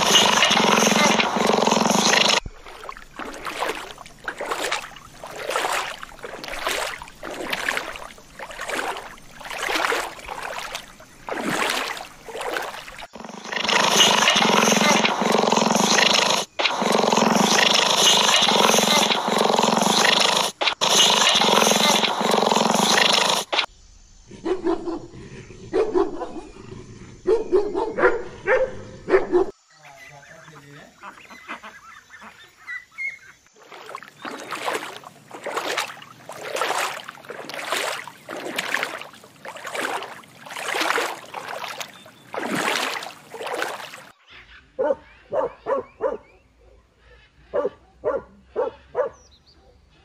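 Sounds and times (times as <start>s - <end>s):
serval growling: 0.0s - 2.4s, 12.6s - 23.7s
water lapping and sloshing: 0.0s - 23.7s, 33.4s - 44.2s.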